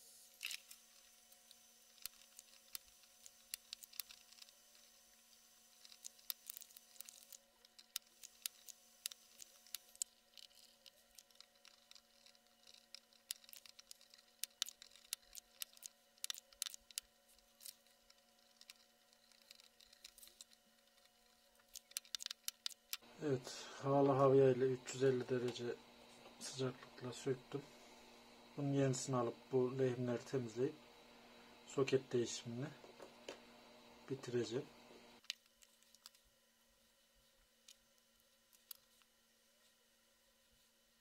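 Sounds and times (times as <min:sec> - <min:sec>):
faint hiss: 0:00.0 - 0:07.4
steady low hum: 0:00.0 - 0:35.2
small tool clicks and ticks: 0:00.4 - 0:23.0.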